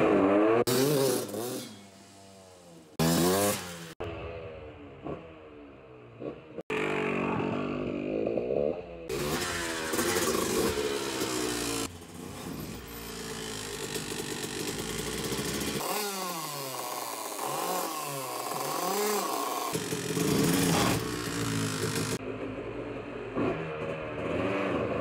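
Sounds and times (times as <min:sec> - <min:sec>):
two-stroke engine revving: 0:00.0 - 0:04.2, 0:05.0 - 0:22.4, 0:23.3 - 0:25.0.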